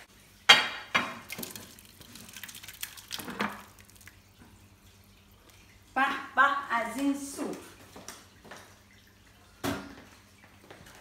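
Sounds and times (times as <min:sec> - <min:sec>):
soup pouring and splashing: 0:00.1 - 0:05.9.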